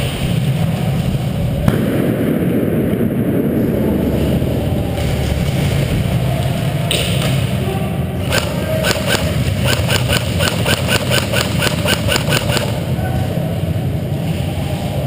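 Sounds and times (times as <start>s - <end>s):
steady low hum: 0.0s - 15.0s
airsoft guns firing: 8.3s - 12.8s.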